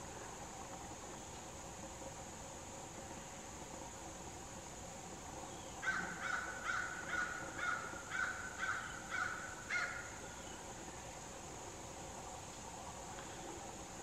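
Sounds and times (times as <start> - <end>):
insects humming: 0.0 - 14.0
crow cawing: 5.8 - 10.1.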